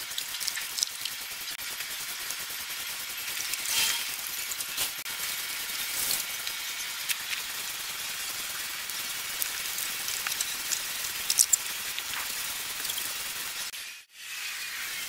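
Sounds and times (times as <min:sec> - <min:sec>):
small clicks: 0:08.9 - 0:13.2.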